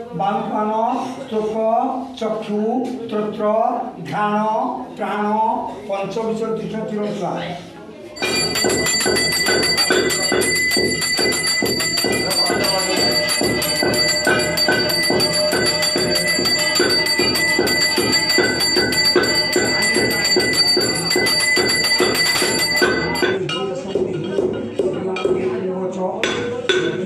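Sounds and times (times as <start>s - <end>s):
bell ringing rapidly: 8.2s - 23.4s.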